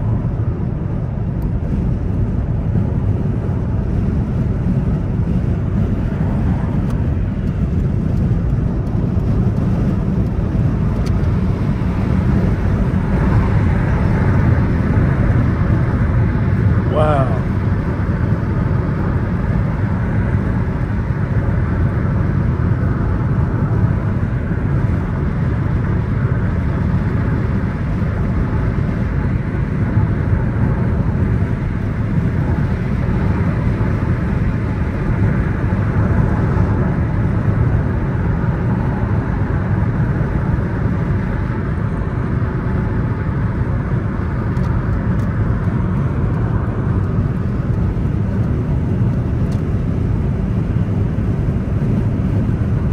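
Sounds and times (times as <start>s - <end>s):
car road and engine noise: 0.0s - 52.9s.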